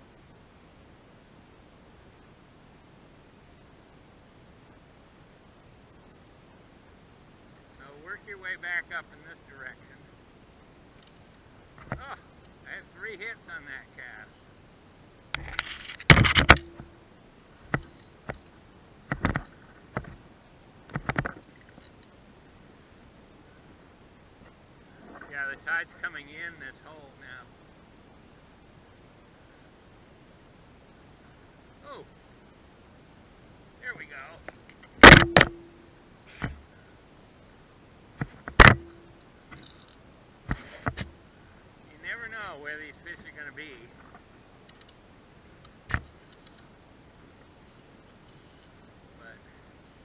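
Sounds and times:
sharp clicks and knocks: 15.4 - 16.9, 19.1 - 20.2, 20.9 - 22.1, 34.5 - 35.8, 38.2 - 41.1.

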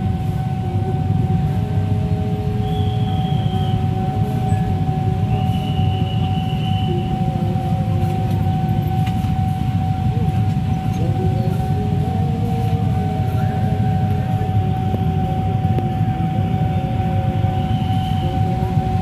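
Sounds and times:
locomotive engine rumble: 0.0 - 19.0
steady high tone: 0.0 - 19.0.

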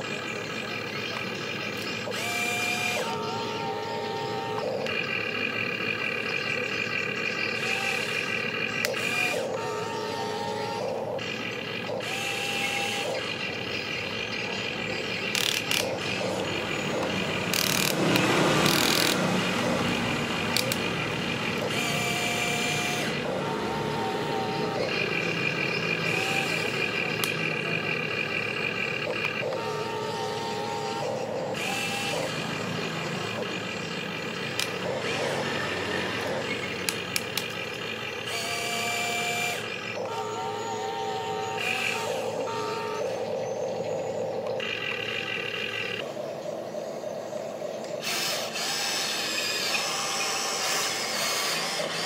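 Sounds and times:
small electric motors whining: 0.0 - 52.0
noisy rush: 39.2 - 52.0.

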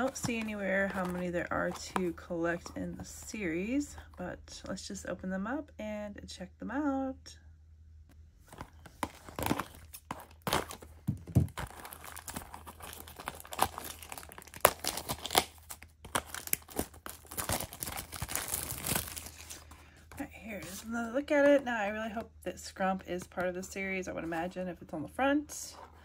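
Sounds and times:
packaging crinkling and tearing: 8.5 - 19.9.

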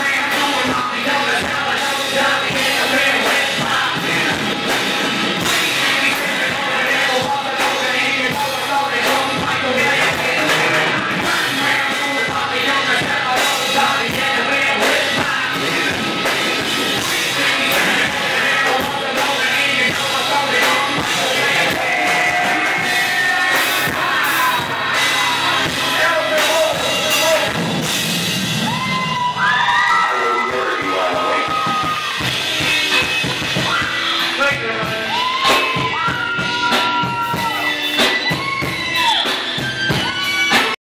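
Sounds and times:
rock band playing live: 0.0 - 40.8
yelled vocal: 0.0 - 40.8.

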